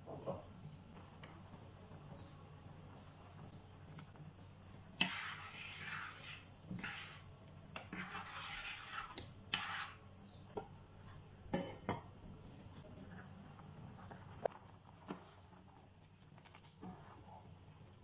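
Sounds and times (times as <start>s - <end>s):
spoon stirring liquid in pot: 5.0s - 10.1s.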